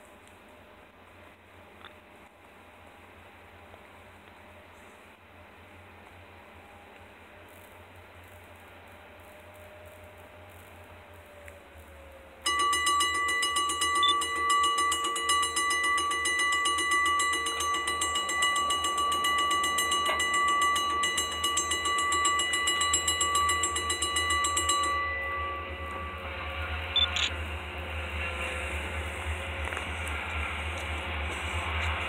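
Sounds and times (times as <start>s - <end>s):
railroad crossing bell ringing: 12.4s - 32.0s.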